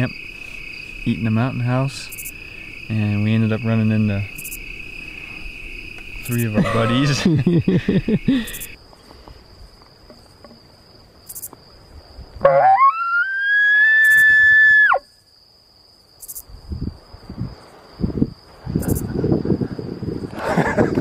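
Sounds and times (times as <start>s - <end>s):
insect trill: 0.0s - 21.0s
elk bugling: 5.0s - 8.8s, 12.4s - 15.0s.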